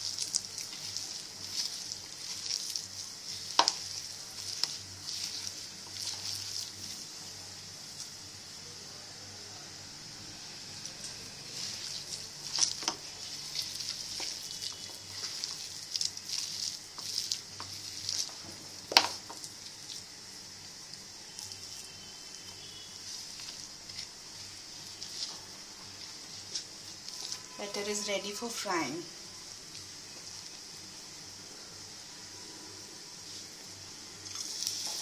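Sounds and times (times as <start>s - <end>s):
hand squishing wet batter: 0.0s - 8.3s, 10.8s - 27.6s.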